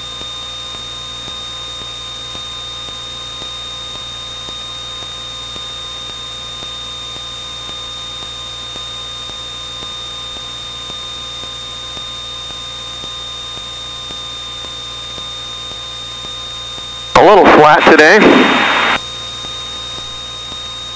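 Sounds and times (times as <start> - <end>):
cockpit intercom hum and hiss: 17.2 - 19.0
high-pitched whine: 17.2 - 19.0.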